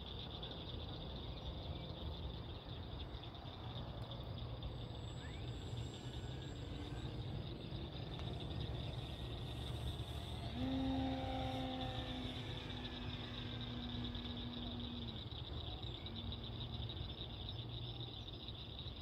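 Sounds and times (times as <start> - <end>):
crickets chirping: 0.0 - 19.0
electric motor and propeller humming: 4.6 - 17.4.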